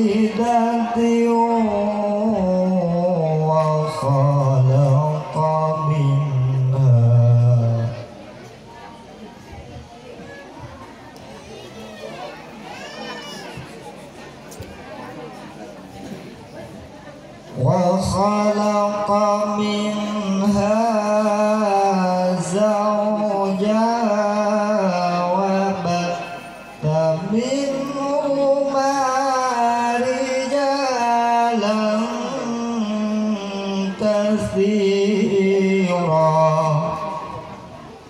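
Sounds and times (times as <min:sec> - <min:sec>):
man reciting melodically: 0:00.0 - 0:08.2, 0:17.5 - 0:37.9.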